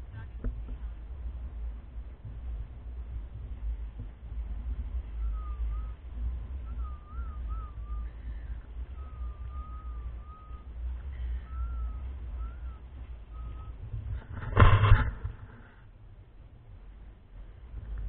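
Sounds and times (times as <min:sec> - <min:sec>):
wind rumble on microphone: 0:00.0 - 0:18.0
wavering whistle-like call: 0:05.0 - 0:13.9
loud bump: 0:14.1 - 0:15.5.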